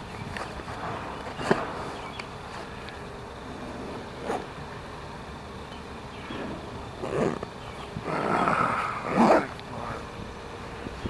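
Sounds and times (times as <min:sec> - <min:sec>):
dog growling: 0:07.0 - 0:07.4, 0:08.0 - 0:09.6.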